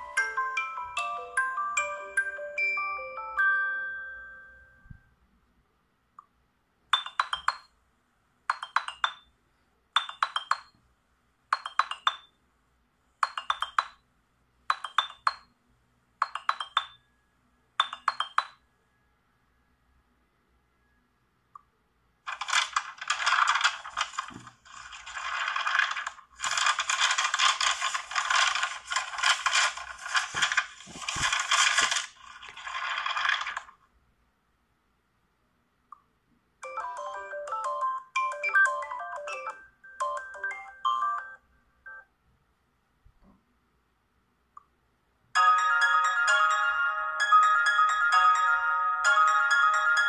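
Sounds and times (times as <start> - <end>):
smartphone ringtones: 0.0 - 4.9, 17.8 - 18.6, 36.6 - 42.1.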